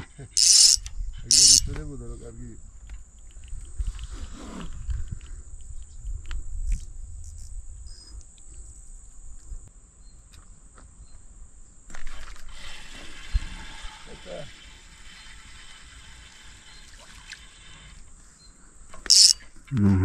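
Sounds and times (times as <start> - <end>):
high insect trill: 0.2 - 4.0, 18.0 - 19.8
hissing noise: 0.4 - 1.7.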